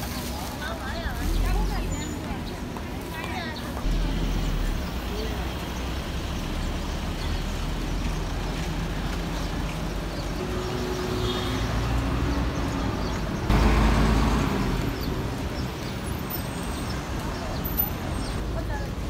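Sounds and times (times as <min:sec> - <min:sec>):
city traffic: 0:00.0 - 0:19.0.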